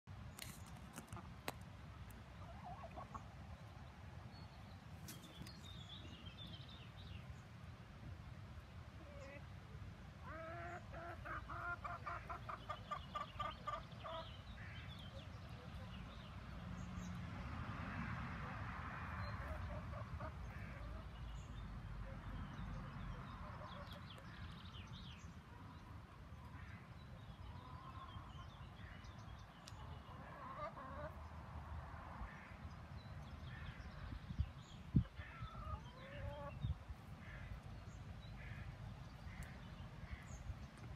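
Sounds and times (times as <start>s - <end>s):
hens calling: 2.4s - 3.3s, 10.2s - 14.9s, 29.8s - 31.2s, 34.9s - 37.7s.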